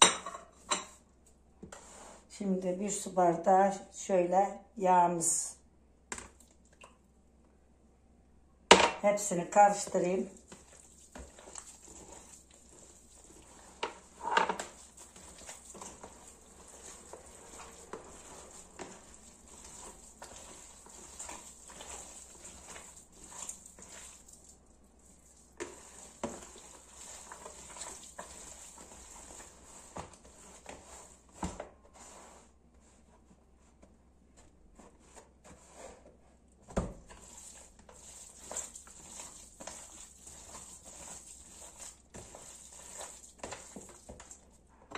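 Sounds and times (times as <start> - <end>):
hands squishing wet meat mix: 9.5 - 31.5, 36.8 - 44.7.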